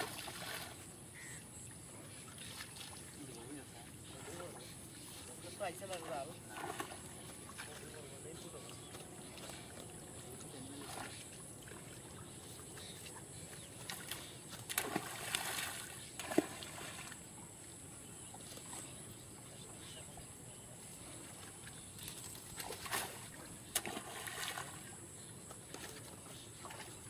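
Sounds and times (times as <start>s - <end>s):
water splashing: 0.0s - 0.9s, 5.4s - 12.3s, 13.8s - 17.3s, 22.3s - 25.0s.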